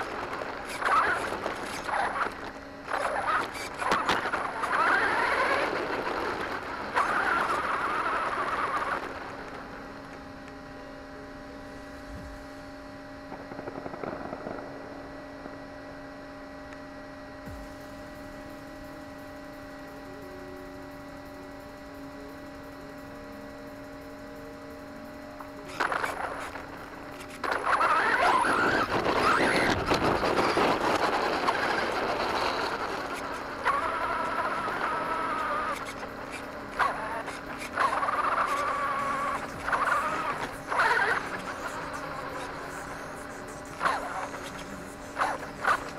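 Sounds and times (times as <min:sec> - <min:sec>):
toy truck motor whine: 0:00.0 - 0:12.2, 0:17.4 - 0:45.9
steady electrical hum: 0:00.0 - 0:45.9.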